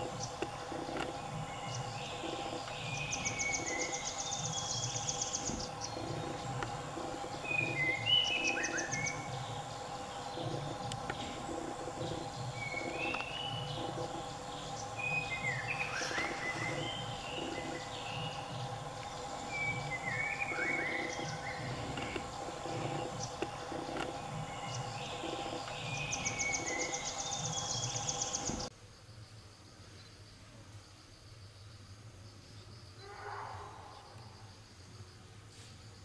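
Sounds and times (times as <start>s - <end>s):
birds chirping and whistling: 0.0s - 28.7s
low regular pulsing: 0.0s - 28.7s
steady drone: 0.0s - 28.7s.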